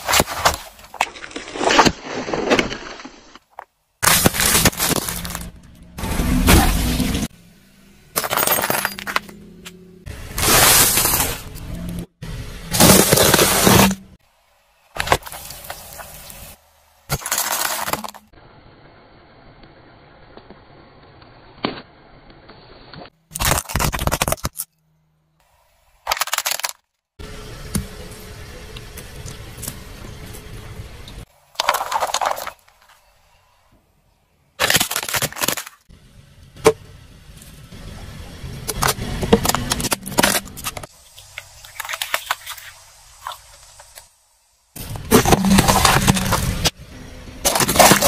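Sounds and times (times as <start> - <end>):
tyre crushing objects: 0.0 - 7.0, 10.3 - 11.6, 12.7 - 14.1, 34.6 - 35.8, 44.8 - 46.8, 47.4 - 48.0.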